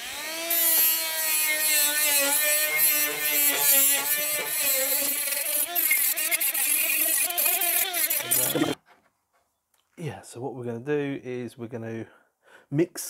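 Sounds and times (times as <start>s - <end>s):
angle grinder grinding metal: 0.0s - 8.8s.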